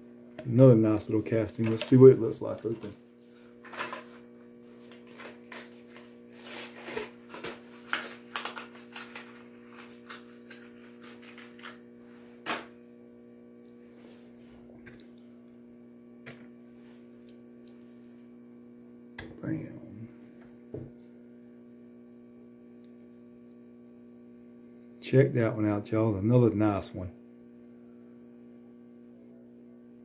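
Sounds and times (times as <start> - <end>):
steady electrical hum: 0.0 - 30.0
plastic packaging crackling: 6.4 - 11.8.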